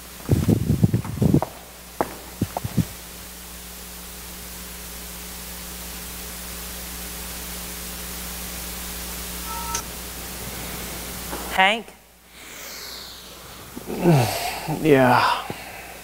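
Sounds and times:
low electrical hum: 0.0s - 16.0s
steady hiss: 0.0s - 16.0s
footsteps on wooden stage floor: 0.1s - 3.0s.

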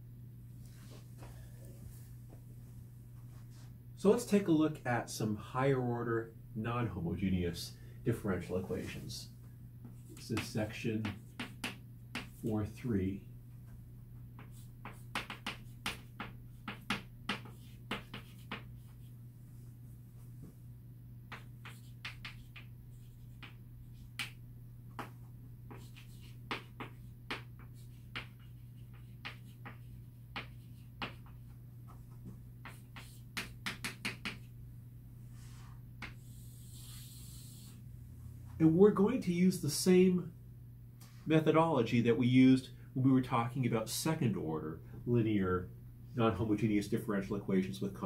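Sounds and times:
steady low hum: 0.0s - 48.0s
chalk tapping on blackboard: 9.8s - 12.5s, 14.3s - 19.1s, 21.3s - 34.5s, 36.0s - 37.8s.

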